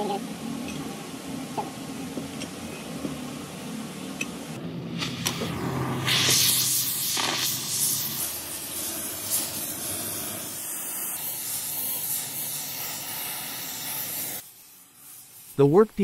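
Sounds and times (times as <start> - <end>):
gas torch flame hissing: 4.9 - 16.0.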